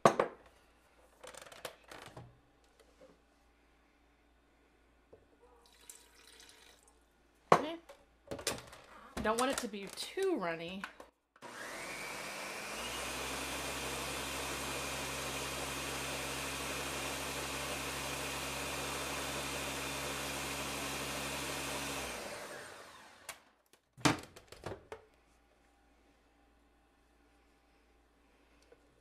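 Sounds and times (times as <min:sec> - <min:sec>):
blender running: 0:11.4 - 0:23.5.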